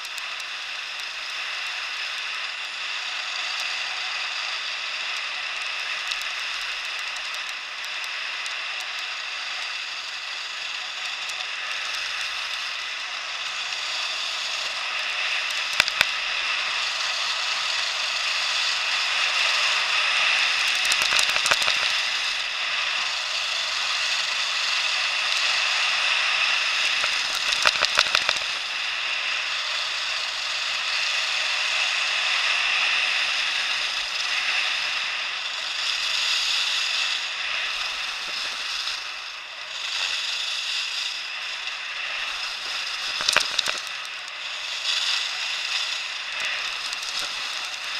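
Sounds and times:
rattling clicks: 15.5s - 16.2s, 20.6s - 22.3s, 26.8s - 28.6s, 37.8s - 39.0s, 42.3s - 44.4s, 45.7s - 47.9s.

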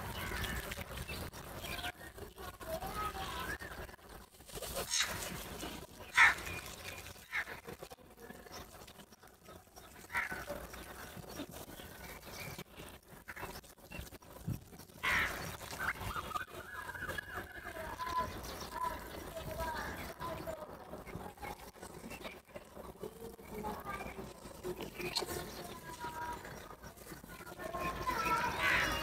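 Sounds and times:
crows cawing: 6.1s - 6.6s, 10.1s - 10.8s, 15.0s - 15.5s.

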